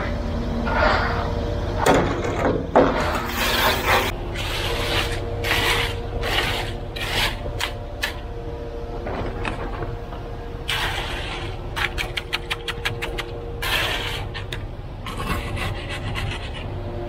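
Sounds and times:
engine hum: 0.0 - 17.0
trowel scraping concrete: 2.9 - 8.2, 10.7 - 16.7.

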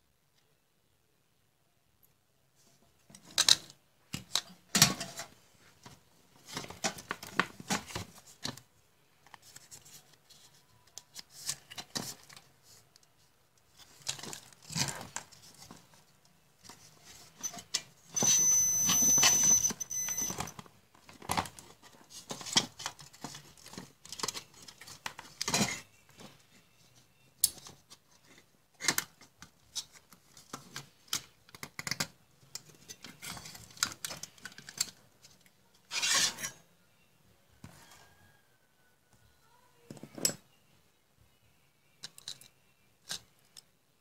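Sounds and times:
hands handling wires and board: 2.6 - 36.4
rustling scrape: 35.9 - 36.6.

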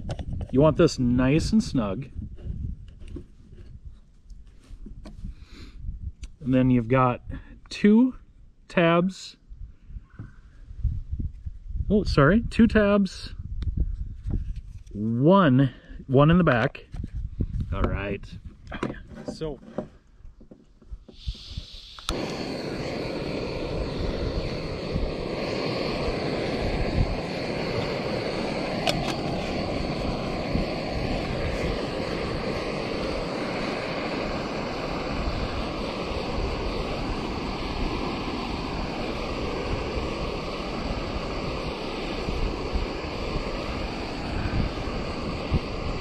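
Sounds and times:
stove burner flame rushing: 0.0 - 3.9, 21.0 - 46.0
gas hissing from valve: 21.0 - 46.0
stove ignition click: 28.7 - 29.6.

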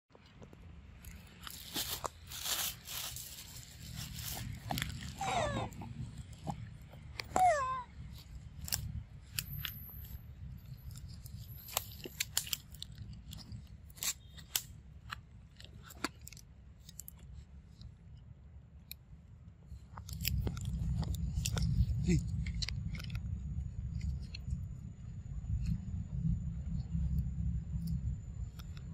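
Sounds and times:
low microphone rumble: 1.1 - 13.9, 19.6 - 28.9.

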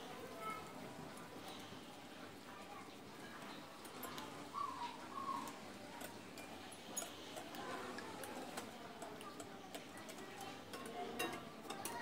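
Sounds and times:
fork ticking against ceramic bowl: 5.4 - 12.0.

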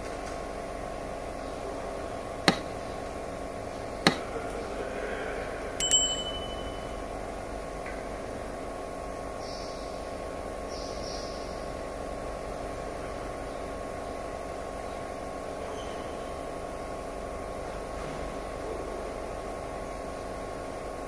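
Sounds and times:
steady hum: 0.8 - 9.2
ringing metallic ping: 5.8 - 7.0.

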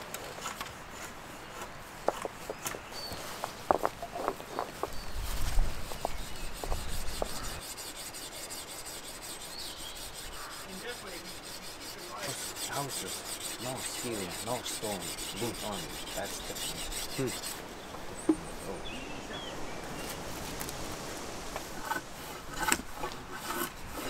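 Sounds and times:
file rasping on steel blade: 5.9 - 17.6, 21.8 - 24.0.

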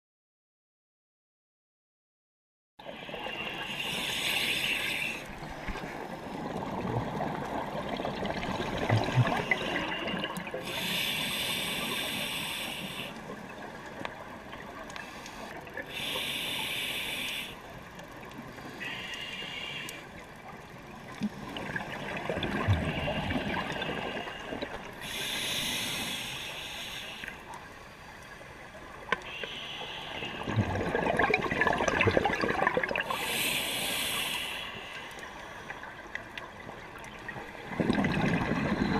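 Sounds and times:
scuba regulator inhalation hiss: 2.9 - 5.4, 9.4 - 13.2, 15.0 - 17.7, 18.6 - 20.1, 22.8 - 27.5, 29.2 - 30.5, 33.0 - 35.9
exhaled bubbles rushing: 6.3 - 10.6, 21.4 - 24.3, 30.4 - 33.2, 37.4 - 38.9.

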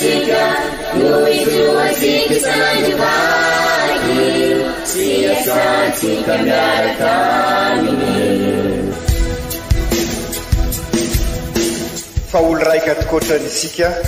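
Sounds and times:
choir singing a hymn: 0.0 - 9.1.

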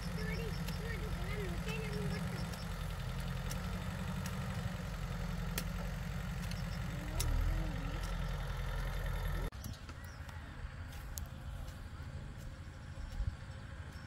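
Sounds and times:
diesel engine idling: 0.0 - 9.5.

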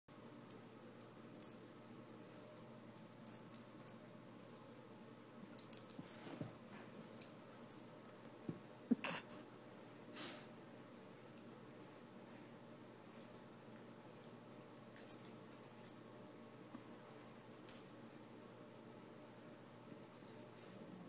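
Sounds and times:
light clicking and jingling: 5.4 - 8.3.

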